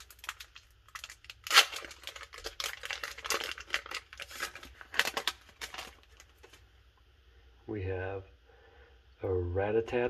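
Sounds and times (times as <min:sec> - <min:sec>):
foil wrapper tearing and crinkling: 0:00.0 - 0:06.6.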